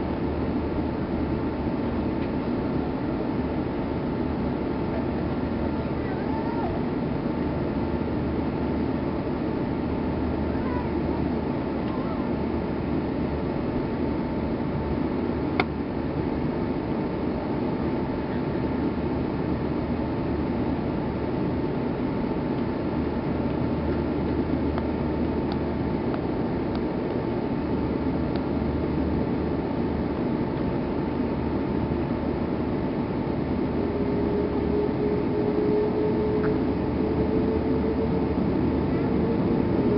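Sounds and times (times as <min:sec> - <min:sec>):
faint steady whine: 0:00.0 - 0:39.9
jet engines idling hum: 0:00.0 - 0:39.9.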